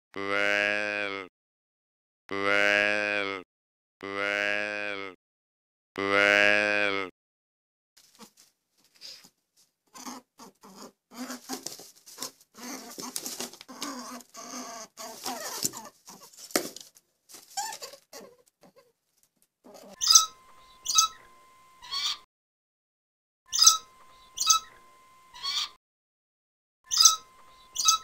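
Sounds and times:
rabbit squeaking and grunting: 0:08.0 - 0:08.4, 0:09.9 - 0:16.6, 0:17.3 - 0:19.0, 0:19.6 - 0:22.3, 0:23.5 - 0:25.8, 0:26.9 - 0:28.0
sharp high calls: 0:20.0 - 0:22.3, 0:23.5 - 0:25.8, 0:26.9 - 0:28.0.

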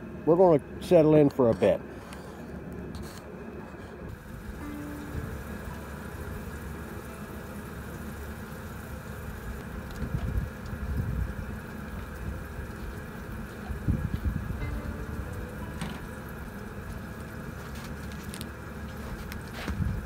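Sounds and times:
light rain falling: 0:04.1 - 0:19.6.

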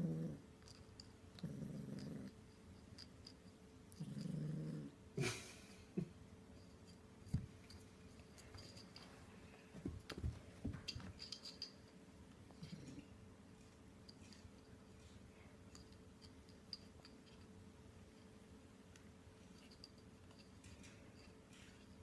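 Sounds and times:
kitten growling: 0:00.0 - 0:00.4, 0:01.4 - 0:02.3, 0:03.9 - 0:05.0
yoyo and paws knocking on carpet: 0:07.2 - 0:09.1, 0:09.7 - 0:11.7.

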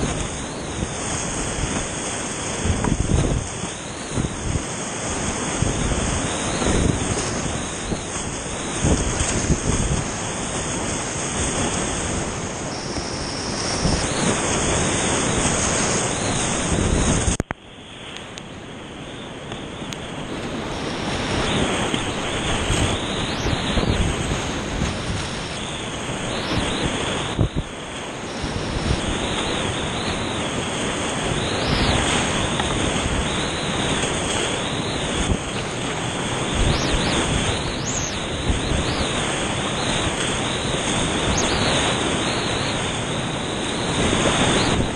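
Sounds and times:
water splashing over kayak: 0:00.0 - 0:17.5, 0:19.6 - 0:44.9
whitewater rapids rushing: 0:19.7 - 0:44.9.

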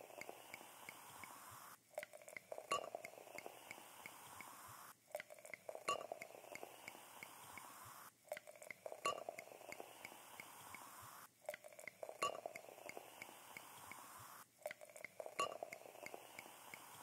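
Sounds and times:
glass-like clinks and ticks: 0:02.0 - 0:03.5, 0:05.1 - 0:06.7, 0:08.3 - 0:10.1, 0:11.5 - 0:13.7, 0:14.6 - 0:16.9.

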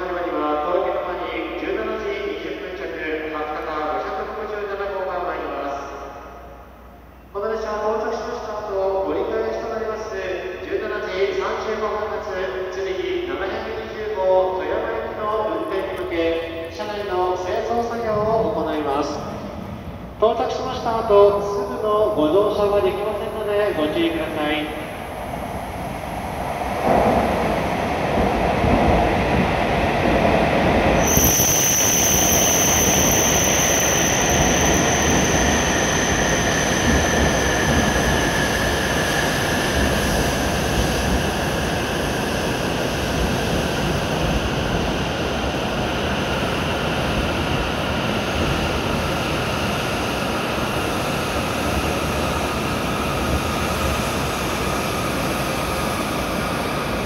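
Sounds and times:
train pulling in and slowing: 0:00.0 - 0:57.0
steady high-pitched tone: 0:31.0 - 0:38.7.

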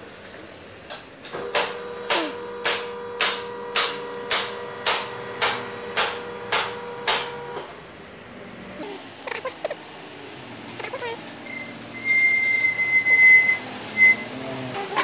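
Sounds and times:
car lift motor humming: 0:01.3 - 0:08.2.

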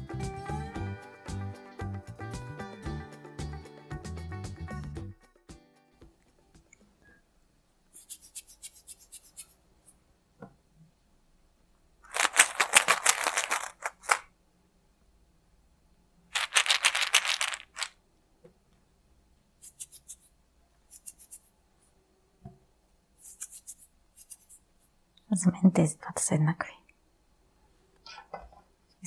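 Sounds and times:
plastic capsules rattling: 0:12.1 - 0:14.3, 0:16.4 - 0:18.0.

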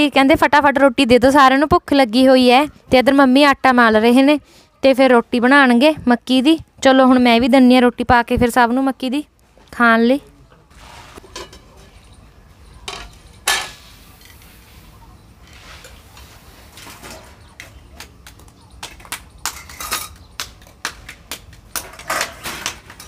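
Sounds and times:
steel bowls set down clinking: 0:11.2 - 0:12.1.

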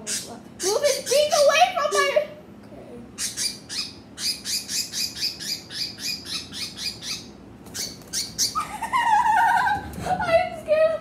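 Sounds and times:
small bird chirping: 0:00.0 - 0:01.5, 0:03.2 - 0:08.6.

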